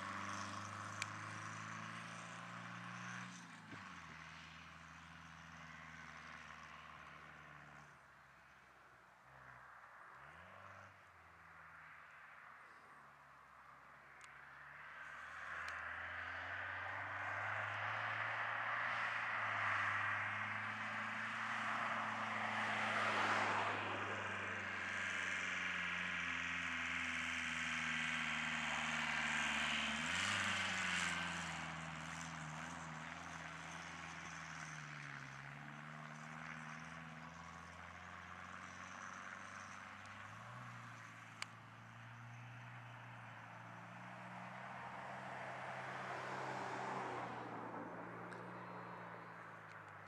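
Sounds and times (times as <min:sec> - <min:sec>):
diesel van engine revving: 0:15.6 - 0:50.0.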